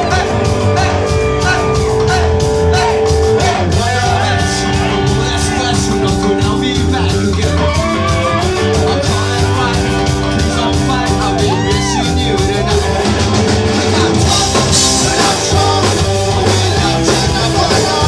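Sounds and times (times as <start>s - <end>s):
drum kit fast beat: 0.0s - 18.0s
electric bass: 0.0s - 18.0s
electric guitar: 0.0s - 18.0s
person singing: 0.0s - 18.0s
punk band playing loud: 0.0s - 18.0s.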